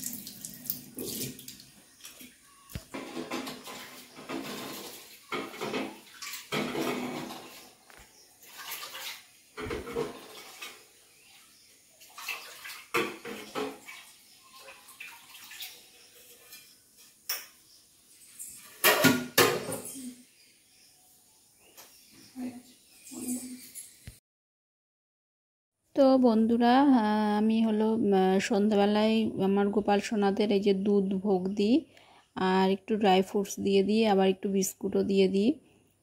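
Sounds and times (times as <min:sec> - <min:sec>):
water splashing from a tap: 0:00.0 - 0:19.9
dishes and utensils clattering: 0:02.9 - 0:07.7, 0:09.6 - 0:10.9, 0:12.4 - 0:14.0, 0:18.3 - 0:20.1.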